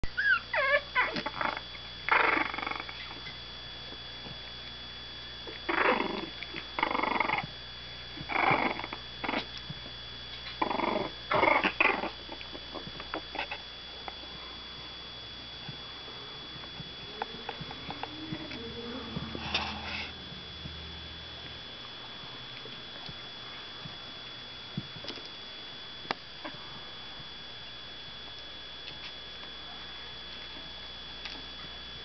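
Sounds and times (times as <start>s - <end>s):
puppies play-growling: 0.1s - 3.4s, 5.4s - 14.8s, 15.6s - 20.8s.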